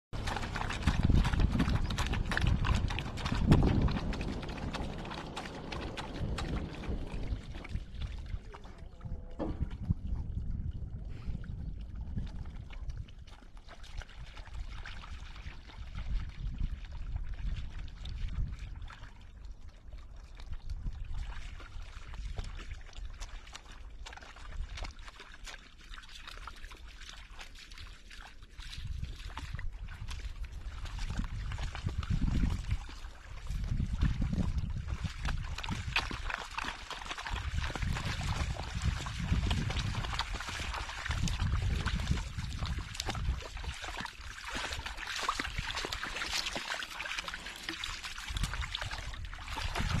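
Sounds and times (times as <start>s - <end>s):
water splashing and lapping: 0.1s - 50.0s
low rumble: 0.2s - 12.6s.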